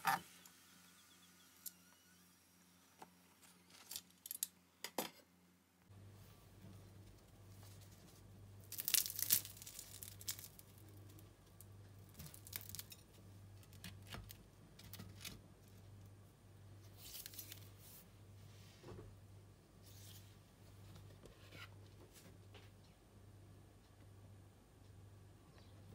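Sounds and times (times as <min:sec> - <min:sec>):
low steady hum: 0:00.0 - 0:25.9
fried pastry crackling and tearing: 0:08.6 - 0:11.3, 0:12.0 - 0:15.4.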